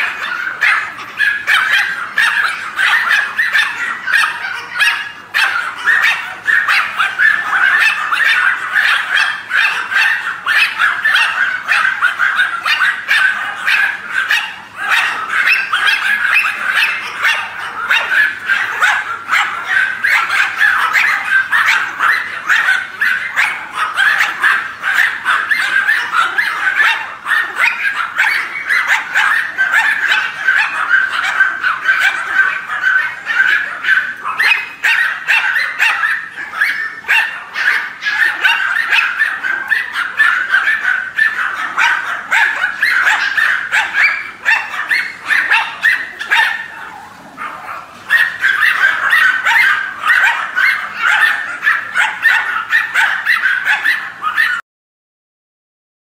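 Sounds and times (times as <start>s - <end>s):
dogs barking and yipping: 0.0s - 54.6s.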